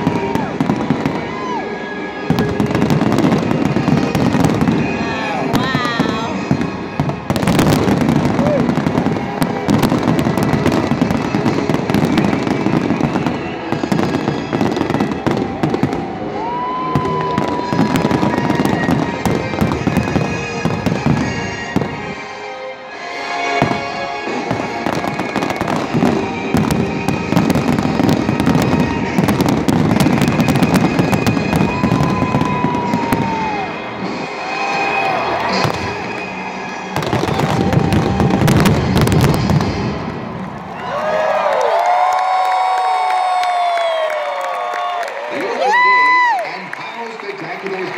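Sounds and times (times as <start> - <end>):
fireworks booming and crackling: 0.0 - 41.8
rising whistling tones: 12.8 - 15.8.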